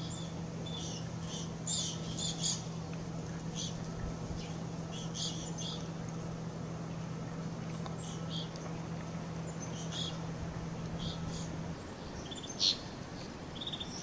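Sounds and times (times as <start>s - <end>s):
chickadees chirping: 0.0s - 2.7s, 3.5s - 5.9s, 9.5s - 10.3s, 11.0s - 14.0s
steady low hum: 0.0s - 14.0s.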